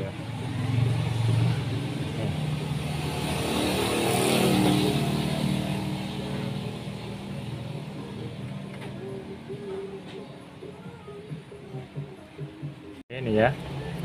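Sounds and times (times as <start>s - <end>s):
vehicle engine passing by: 0.0s - 9.9s.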